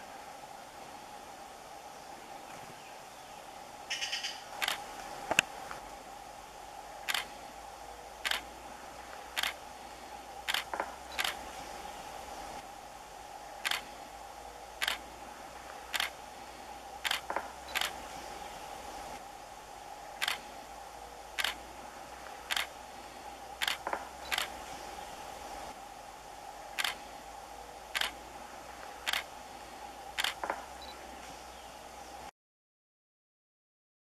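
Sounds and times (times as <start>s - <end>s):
woodpecker knocking on tree: 10.6s - 11.0s, 17.1s - 17.5s, 30.3s - 30.7s.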